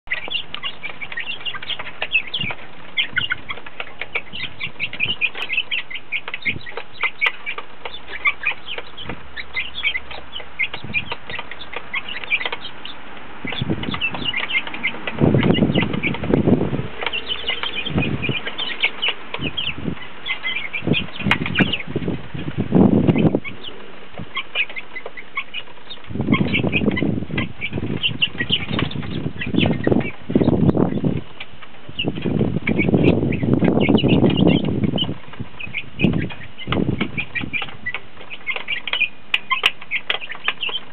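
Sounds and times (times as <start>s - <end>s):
chicks peeping: 0.0s - 40.9s
wing flapping and scuffling: 0.1s - 40.9s.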